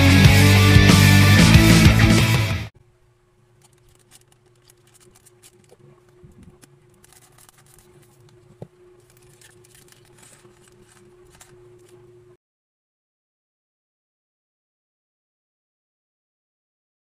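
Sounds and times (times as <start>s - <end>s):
small clicks: 3.6s - 12.0s.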